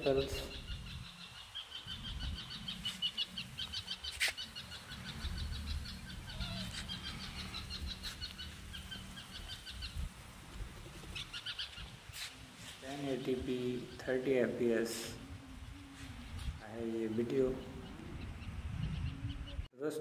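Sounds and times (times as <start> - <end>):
bird chirping: 0.0 - 10.2, 10.8 - 19.7.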